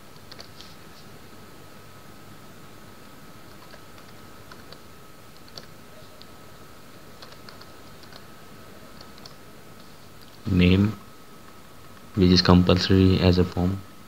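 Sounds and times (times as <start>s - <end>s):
steady low hiss: 0.0s - 14.0s
keyboard typing clicks: 0.1s - 0.6s, 3.5s - 6.3s, 7.2s - 8.3s, 9.0s - 9.4s.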